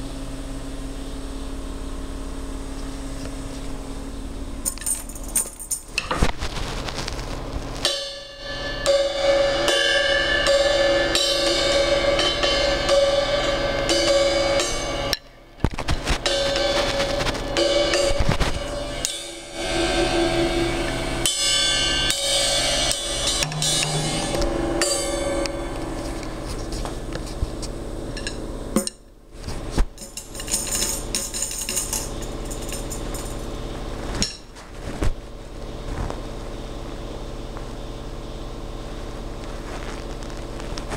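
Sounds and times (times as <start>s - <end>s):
cymbals ringing: 7.8s - 15.6s, 16.2s - 29.0s, 30.0s - 33.6s
drums playing: 20.7s - 27.1s.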